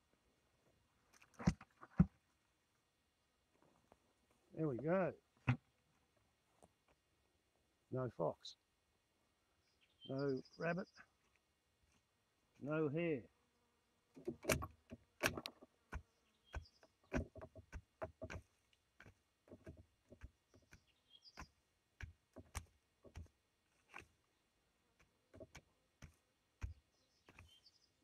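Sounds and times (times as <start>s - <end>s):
stick scraping soil: 14.2s - 24.3s, 25.0s - 28.0s.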